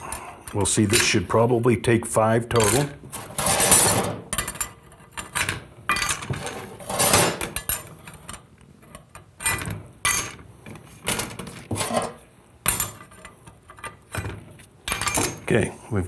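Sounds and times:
metal plates clinking: 0.0 - 1.5, 2.5 - 15.6.

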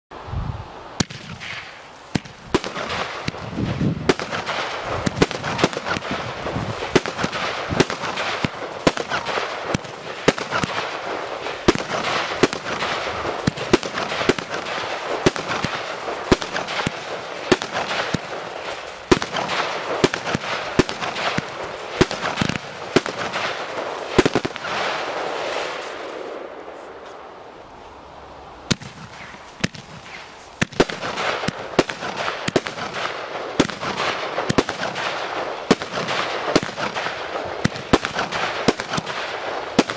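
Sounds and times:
crackling hiss: 0.1 - 39.9
firework barrage bangs: 1.0 - 26.4, 28.7 - 39.9.

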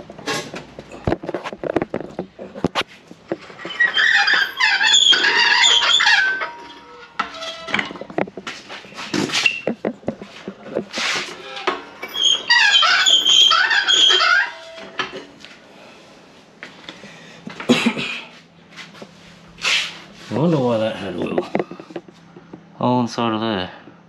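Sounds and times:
high wavering squeaks: 3.5 - 7.9, 11.2 - 15.0.

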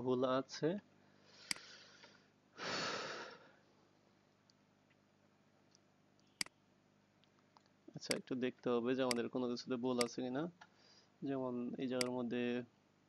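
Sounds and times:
person breathing into microphone: 1.2 - 3.6, 10.7 - 11.2
sharp click: 1.5 - 1.7, 5.7 - 6.6, 9.0 - 9.3.

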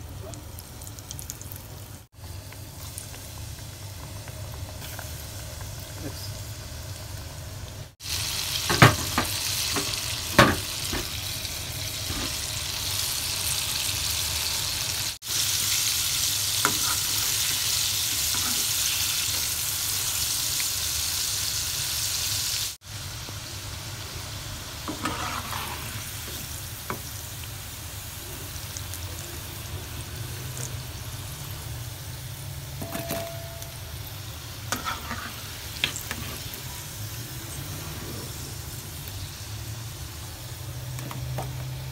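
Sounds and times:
chicken deep-frying in oil: 0.0 - 41.9
metal spatula scraping and clicking: 24.9 - 25.9, 34.7 - 36.4.

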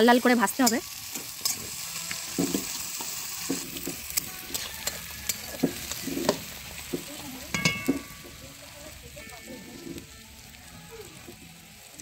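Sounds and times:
onions sizzling in oil: 0.0 - 12.0
metal spatula scraping pan: 0.6 - 8.4, 9.4 - 10.2.

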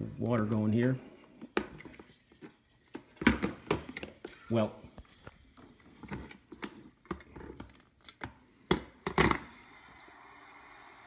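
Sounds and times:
faint steady hiss: 8.0 - 11.0.

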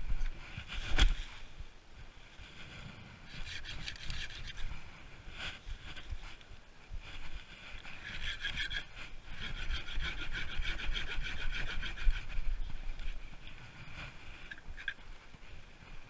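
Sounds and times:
hand saw cutting branch: 3.3 - 4.6, 7.8 - 12.5.

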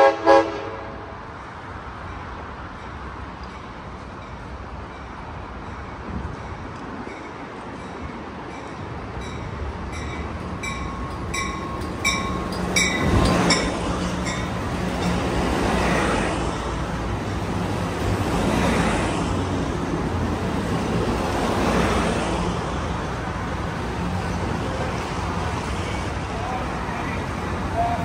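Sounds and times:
train cars rushing and rumbling: 0.0 - 28.0
crossing bell ringing: 3.6 - 15.9.

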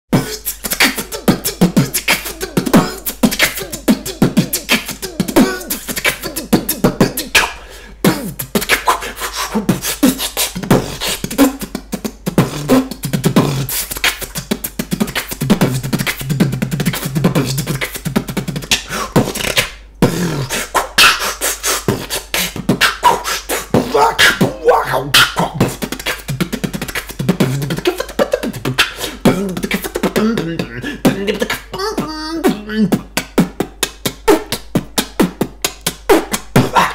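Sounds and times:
hummed vocal tones: 0.1 - 36.9
man beatboxing: 0.1 - 36.9.

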